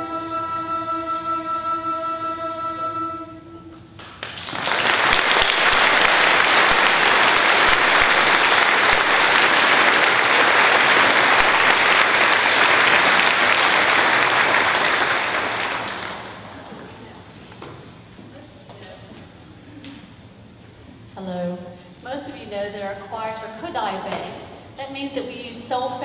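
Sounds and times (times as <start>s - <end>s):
audience applause: 4.0s - 17.1s.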